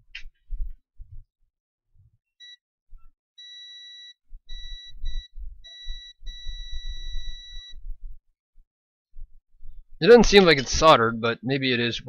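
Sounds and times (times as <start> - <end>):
multimeter continuity beeps: 2.4 - 2.6, 3.4 - 7.9.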